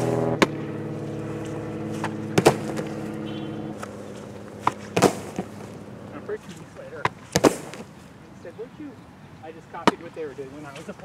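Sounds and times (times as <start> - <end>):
soccer ball thuds: 0.3 - 0.6, 1.4 - 5.8, 6.9 - 8.0.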